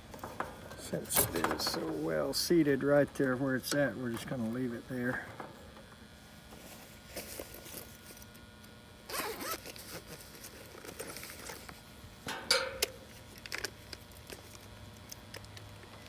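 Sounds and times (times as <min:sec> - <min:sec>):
zipper rasping: 0:09.1 - 0:10.0.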